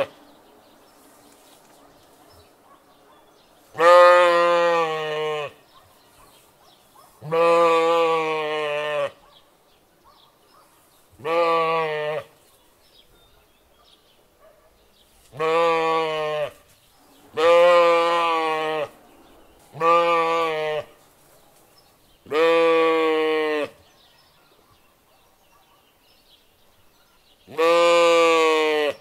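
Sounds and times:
sheep bleating: 3.7 - 5.6, 7.2 - 9.2, 11.2 - 12.4, 15.3 - 16.6, 17.3 - 19.0, 19.7 - 21.0, 22.3 - 23.8, 27.5 - 29.0.

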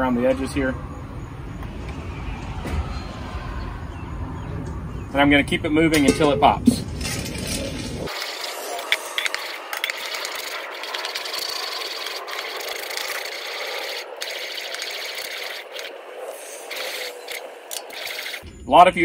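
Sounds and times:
oil and kernels sizzling on griddle: 8.1 - 18.4.

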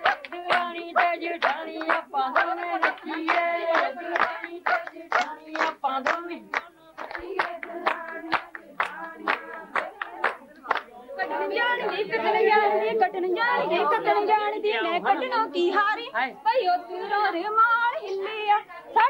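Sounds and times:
hand-clapping rhythm: 0.0 - 12.7
women singing: 0.0 - 19.0.

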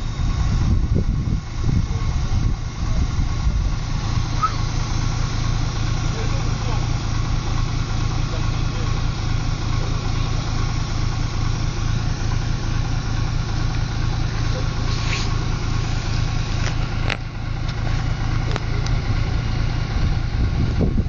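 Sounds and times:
engine idling: 0.0 - 21.0.

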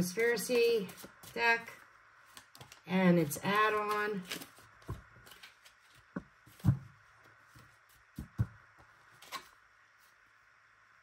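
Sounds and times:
cards rustling: 0.0 - 1.6, 2.2 - 6.8, 9.1 - 9.6.

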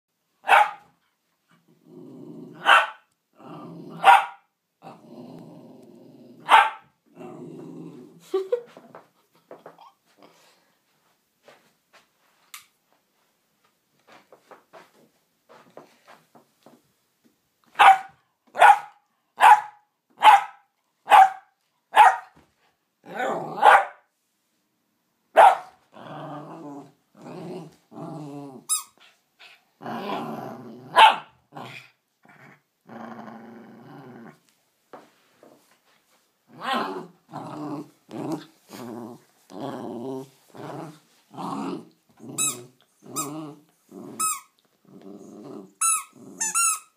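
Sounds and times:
dog barking: 0.4 - 0.9, 2.6 - 3.1, 4.0 - 4.5, 6.4 - 6.9, 17.8 - 22.4, 23.6 - 24.0, 25.4 - 25.8, 30.9 - 31.3
dog growling: 1.7 - 2.7, 3.4 - 4.1, 4.8 - 6.5, 7.1 - 8.5, 23.0 - 23.6, 25.9 - 28.7, 29.8 - 34.4, 36.5 - 46.6.

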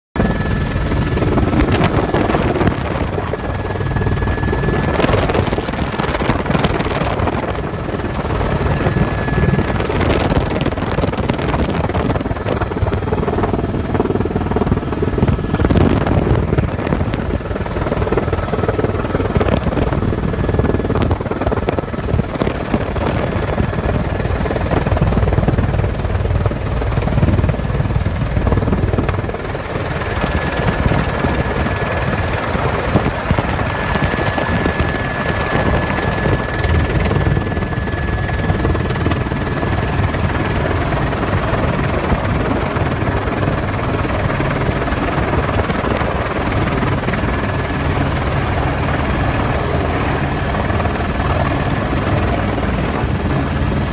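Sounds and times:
helicopter rotor and engine drone: 0.2 - 53.9.

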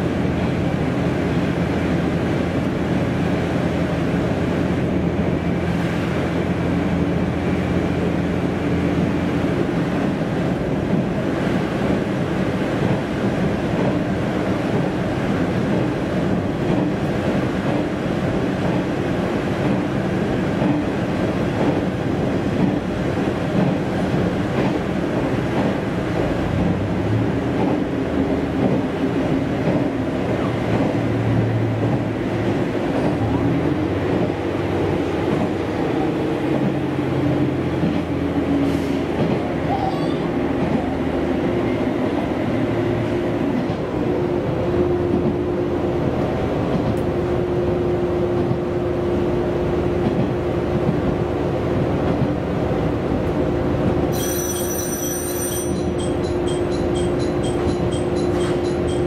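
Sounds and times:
train engine drone: 0.0 - 59.0
wheels rumbling on rails: 0.0 - 59.0
high-pitched repeating tone: 54.2 - 59.0.

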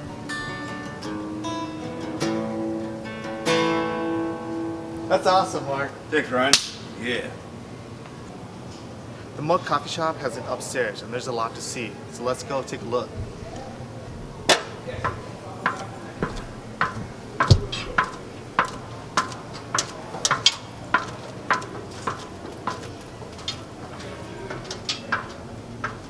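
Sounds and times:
footsteps clanking on metal stairs: 14.5 - 26.0.

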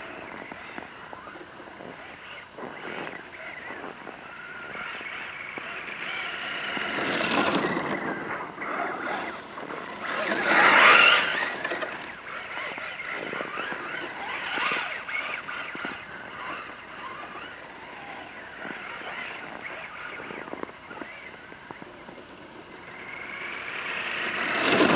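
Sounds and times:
rc truck electric motor whining: 0.1 - 21.4, 22.8 - 24.9.

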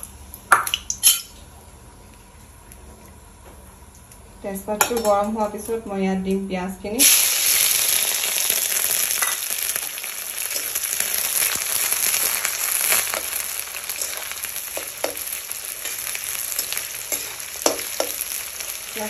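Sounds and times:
onions sizzling in hot oil: 7.0 - 19.0.

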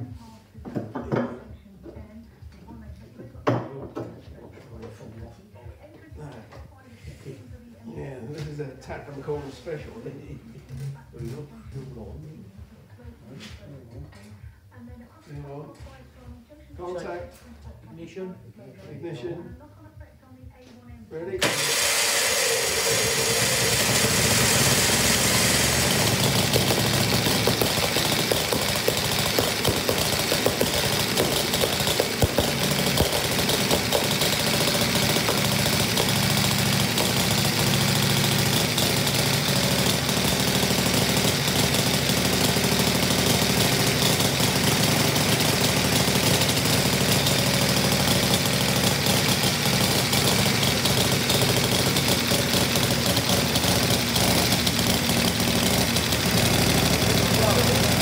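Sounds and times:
v-twin engine running: 21.4 - 58.0.

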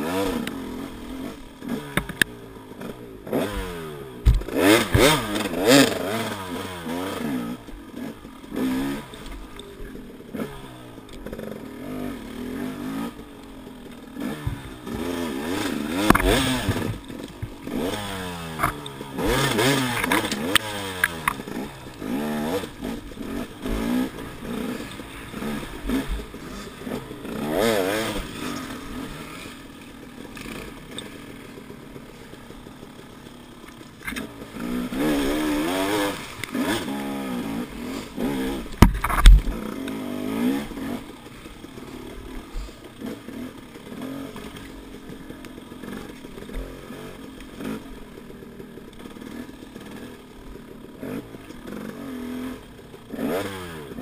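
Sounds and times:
bike rattling: 0.0 - 54.0
dirt bike engine revving: 0.0 - 54.0
sharp thump: 38.8 - 39.5.

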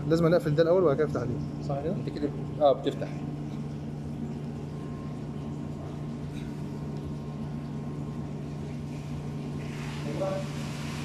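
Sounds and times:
pump humming: 0.0 - 11.0
constant hiss: 8.4 - 11.0.

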